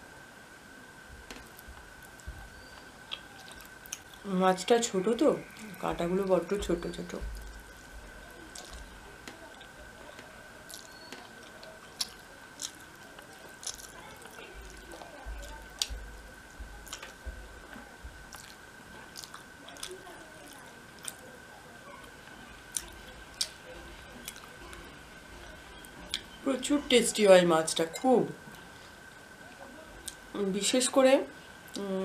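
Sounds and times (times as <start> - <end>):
faint high-pitched hum: 0.0 - 32.0
person chewing: 1.3 - 4.3, 7.3 - 9.7, 10.7 - 16.0, 16.8 - 17.2, 18.3 - 21.2, 22.7 - 24.8.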